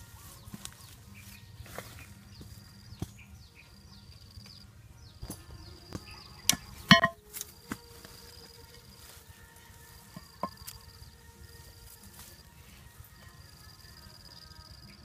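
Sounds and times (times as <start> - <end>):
insects buzzing: 0.0 - 15.0
board dropping with ringing knock: 6.5 - 7.2.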